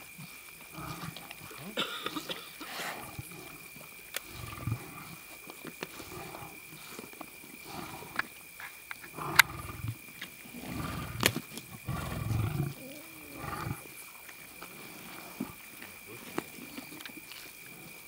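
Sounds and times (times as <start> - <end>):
lions growling: 0.7 - 1.7, 2.8 - 8.3, 9.1 - 14.0.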